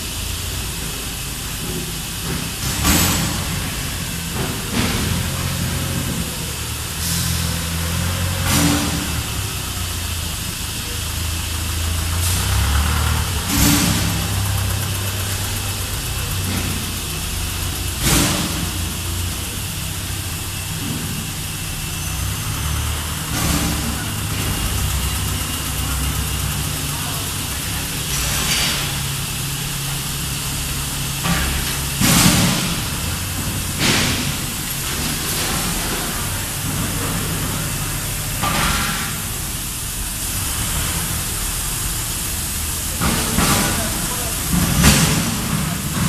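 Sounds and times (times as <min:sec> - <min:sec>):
low machinery hum: 0:00.0 - 0:46.0.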